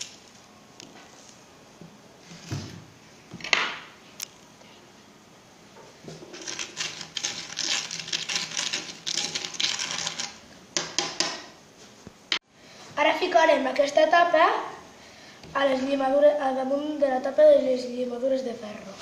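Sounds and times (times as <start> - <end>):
metal spoon scraping gritty mixture: 6.3 - 10.4.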